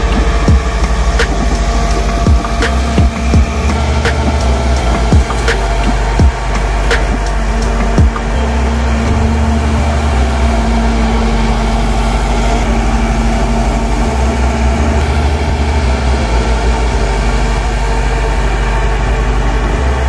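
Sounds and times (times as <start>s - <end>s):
bulldozer diesel engine running: 0.0s - 20.0s.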